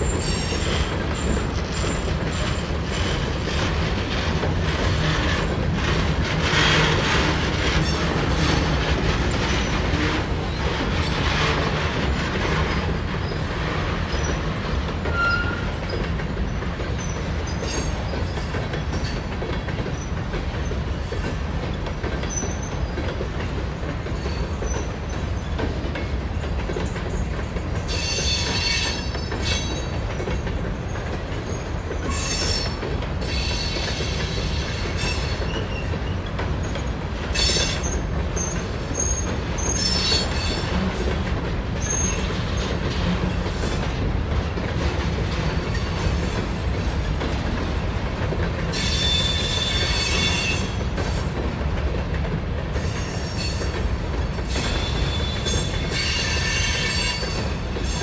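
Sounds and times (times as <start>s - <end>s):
high wheel squeal: 0.0s - 3.2s, 15.1s - 16.0s, 37.4s - 40.7s, 48.7s - 50.8s, 54.6s - 58.0s
rumble of wheels on rail: 0.0s - 58.0s.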